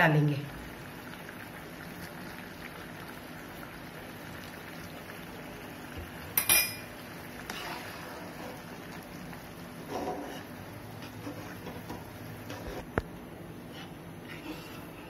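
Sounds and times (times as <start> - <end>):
gravy bubbling in pan: 0.4 - 15.0
metal spatula clinking on pan: 6.4 - 6.9.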